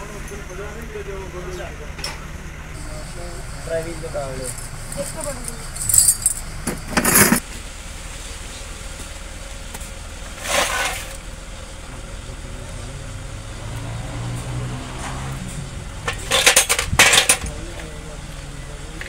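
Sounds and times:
metallic clinks of engine parts: 3.7s - 7.4s, 15.5s - 18.4s
scraping rustle: 10.3s - 11.2s.

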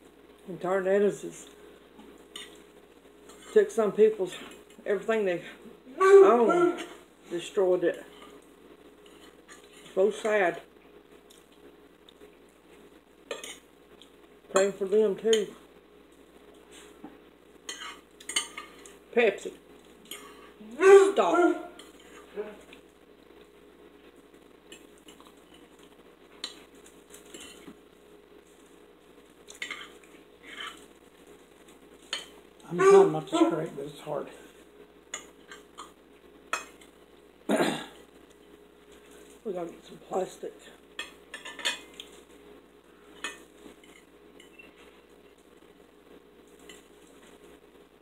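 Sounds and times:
forks clinking on plates: 17.7s - 18.9s, 41.0s - 42.1s.

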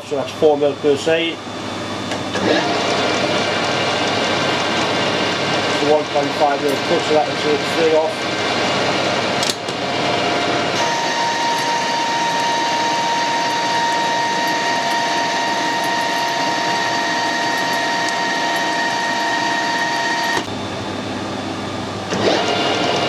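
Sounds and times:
high whine of cutting: 0.0s - 23.0s
metal lathe running: 2.1s - 20.5s.

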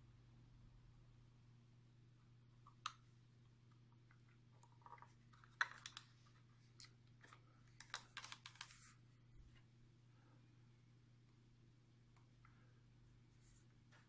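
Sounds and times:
faint low hum: 0.0s - 14.0s
plastic clicks and handling: 3.7s - 8.8s.

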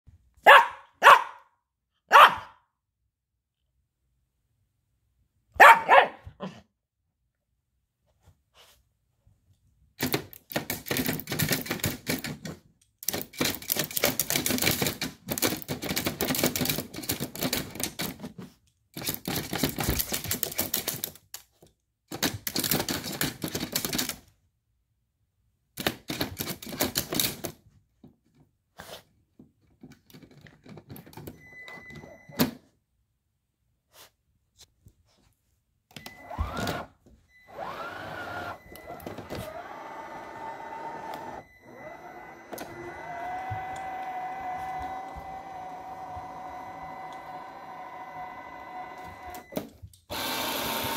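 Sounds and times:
robot vacuum motor humming: 37.5s - 49.5s, 50.1s - 50.9s.

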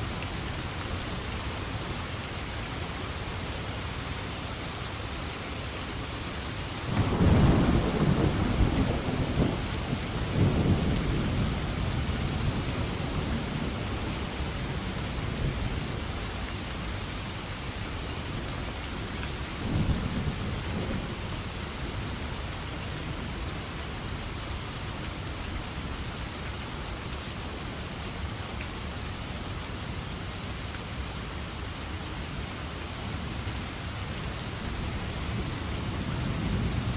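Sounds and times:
steady rain falling: 0.0s - 36.9s
thunder rumbling: 6.9s - 13.8s.

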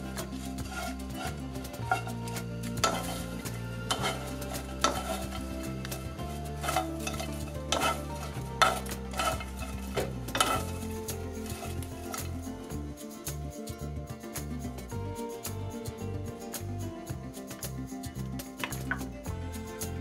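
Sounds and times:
dried fish rattling in a pan: 0.0s - 12.7s
wooden spoons clacking: 0.0s - 13.5s, 17.3s - 20.0s.

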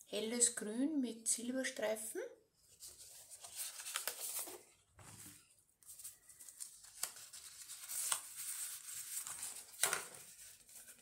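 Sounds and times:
paper sheets rustling and sliding: 2.7s - 11.0s.

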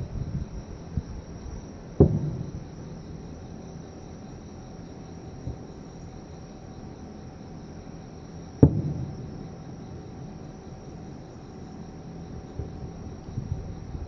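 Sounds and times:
insects chirping: 0.0s - 14.0s
faint firework thump: 2.0s - 2.7s, 8.6s - 9.4s
distant firework boom: 2.0s - 2.9s, 8.6s - 10.2s.

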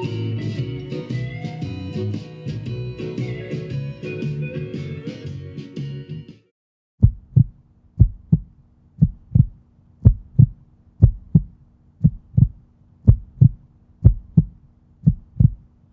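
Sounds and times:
heartbeat thumps: 7.0s - 15.7s
faint steady hum: 7.0s - 15.9s.

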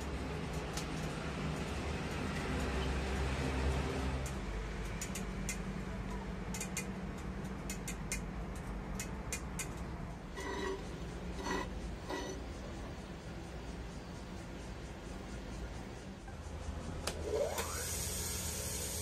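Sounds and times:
sharp light ticks: 0.4s - 5.7s, 6.5s - 9.9s
gas forge roaring: 10.2s - 13.0s.

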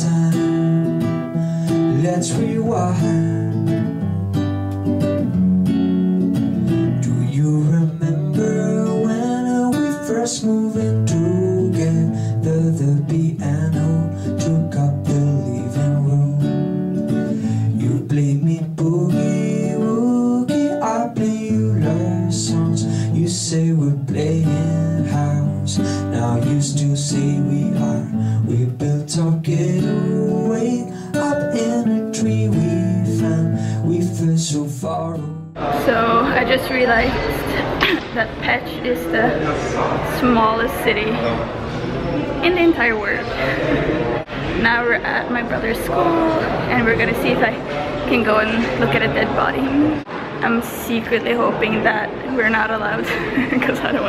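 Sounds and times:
strummed acoustic guitar song: 0.0s - 38.2s.

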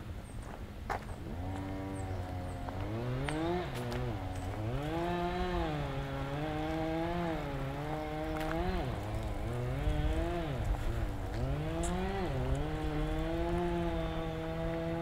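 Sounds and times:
small engine running at high speed: 1.2s - 15.0s.

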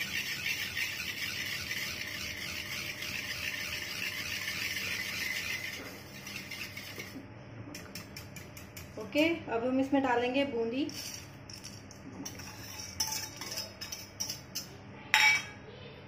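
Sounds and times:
wire whisk scraping steel bowl: 0.0s - 7.2s, 7.8s - 9.0s, 12.2s - 14.7s.

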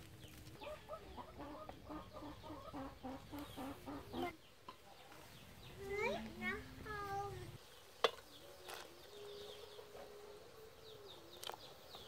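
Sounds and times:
hen clucking: 0.6s - 5.2s.

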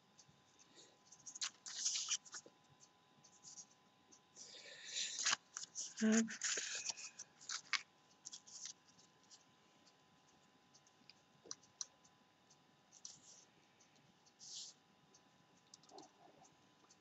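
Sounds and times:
paper clicks and rustles on a table: 1.2s - 2.5s, 5.1s - 10.0s.

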